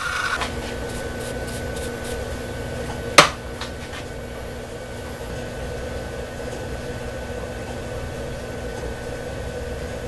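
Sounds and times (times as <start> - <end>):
high whine: 0.0 - 2.6
milling machine humming: 0.0 - 10.0.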